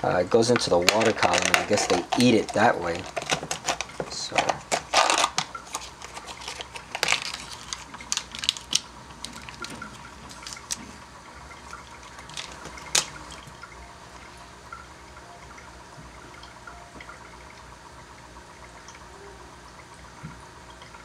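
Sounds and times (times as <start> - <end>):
aquarium water bubbling: 0.0 - 21.0.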